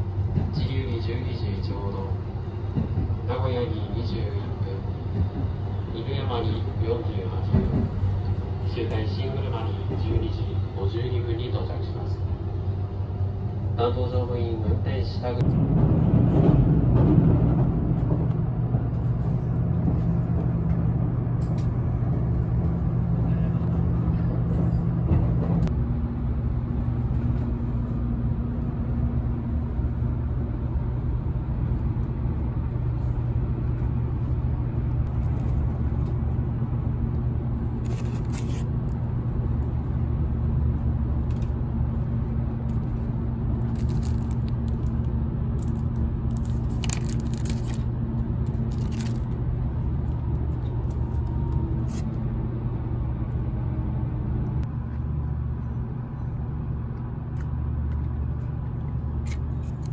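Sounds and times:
electric train rumble and hum: 0:00.0 - 0:59.9
food wrapping crinkling: 0:43.7 - 0:44.8, 0:45.6 - 0:47.9, 0:48.5 - 0:49.3.

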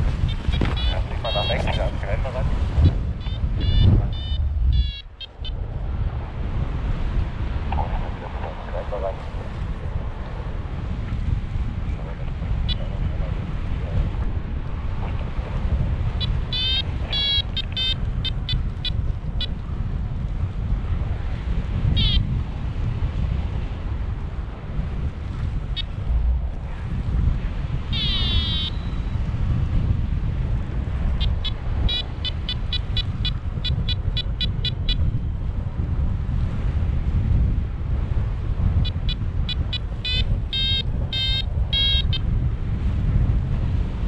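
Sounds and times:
wind buffeting the microphone: 0:00.0 - 0:44.0
high electronic beeps: 0:00.5 - 0:01.9, 0:03.3 - 0:05.6, 0:16.2 - 0:18.4, 0:22.0 - 0:22.2, 0:27.9 - 0:28.9, 0:31.2 - 0:35.0, 0:38.8 - 0:42.2.

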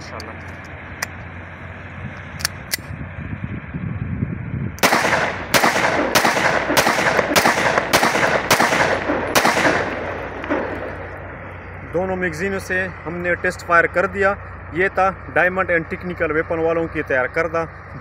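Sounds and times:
pistol shots: 0:04.8 - 0:11.4.

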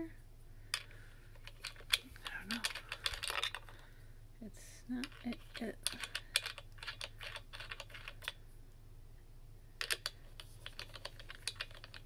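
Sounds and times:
metal bracket clicking and rattling: 0:00.8 - 0:03.8, 0:09.8 - 0:12.0.

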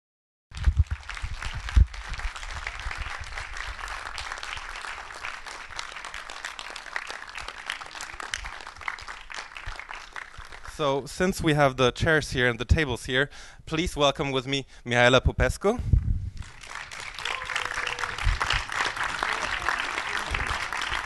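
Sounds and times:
audience applauding: 0:00.6 - 0:10.7, 0:16.4 - 0:21.0.

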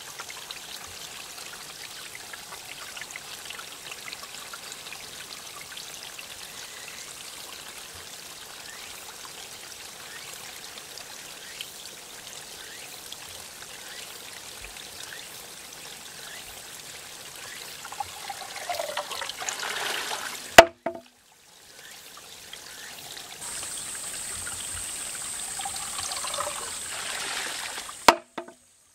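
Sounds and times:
water trickling into bamboo tube: 0:16.2 - 0:28.6
bamboo tube striking stone: 0:20.6 - 0:21.1, 0:28.0 - 0:28.6
cicadas buzzing: 0:23.4 - 0:28.8.

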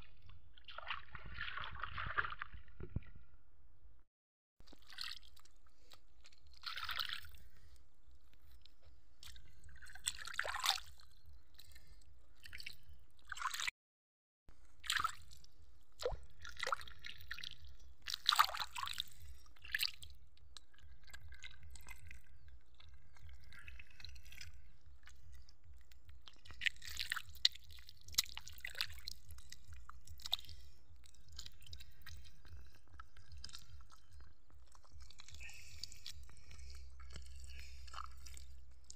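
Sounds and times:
water splashing and dripping: 0:04.7 - 0:07.4, 0:16.0 - 0:20.1, 0:25.8 - 0:34.0
wet mud squelching: 0:04.7 - 0:11.9, 0:16.0 - 0:38.9
faint low rumble: 0:20.2 - 0:38.9.

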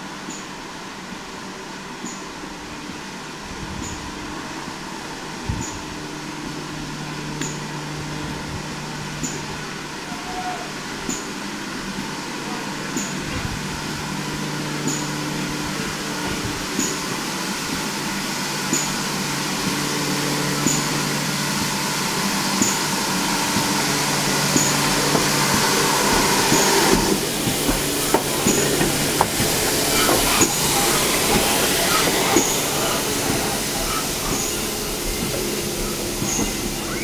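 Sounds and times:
steam hissing: 0:00.0 - 0:37.0
train wheels clicking over rail joints: 0:20.5 - 0:37.0.

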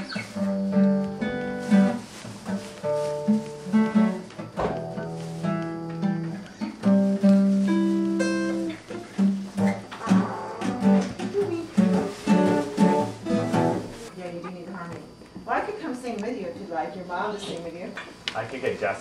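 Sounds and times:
acoustic guitar chords: 0:00.0 - 0:14.1.

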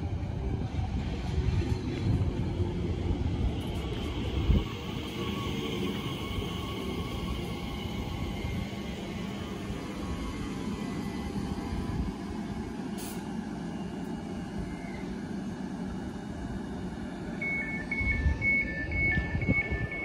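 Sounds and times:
two-tone door alert beeps: 0:17.4 - 0:20.0.

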